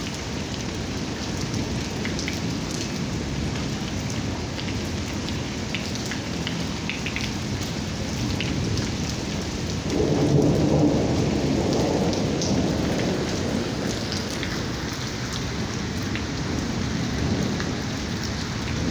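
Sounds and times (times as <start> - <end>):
rain falling on puddles: 0.0 - 18.9
thunder rumble: 9.8 - 17.9.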